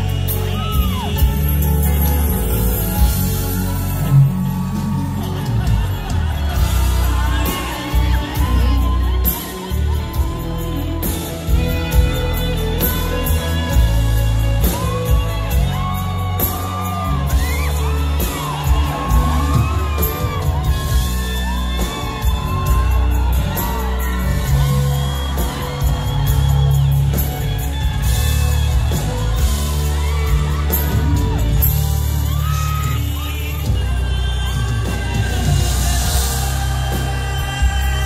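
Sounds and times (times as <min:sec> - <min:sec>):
crowd whooping and shouting: 0:00.0 - 0:38.0
live band music: 0:00.0 - 0:38.0.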